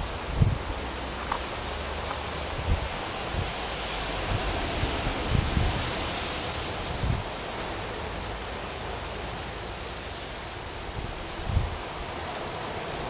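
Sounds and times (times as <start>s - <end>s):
wind buffeting microphone: 0.0s - 7.4s, 10.6s - 12.2s.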